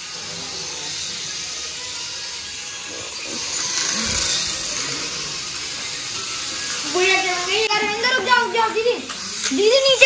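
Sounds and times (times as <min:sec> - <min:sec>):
toy drone propellers buzzing: 0:00.0 - 0:10.0.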